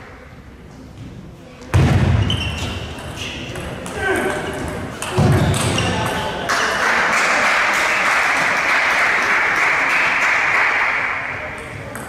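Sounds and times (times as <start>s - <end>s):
spectators clapping: 6.4s - 11.5s.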